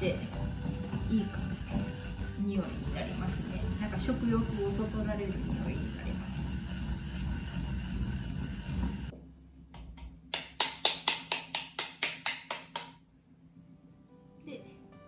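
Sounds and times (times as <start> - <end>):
seeds grinding in ceramic bowl: 0.0 - 9.1.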